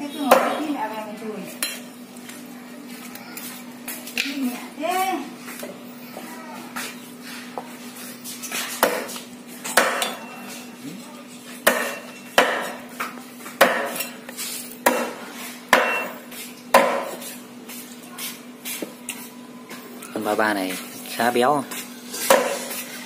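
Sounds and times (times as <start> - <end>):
knife chopping on chopping board: 0.3 - 0.6, 8.6 - 10.1, 11.6 - 14.2, 14.8 - 17.4, 22.2 - 22.9.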